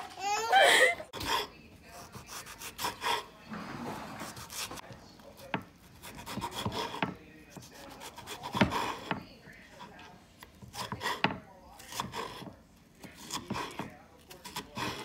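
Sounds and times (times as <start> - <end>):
knife slicing on wooden board: 5.4 - 9.2, 10.4 - 15.0.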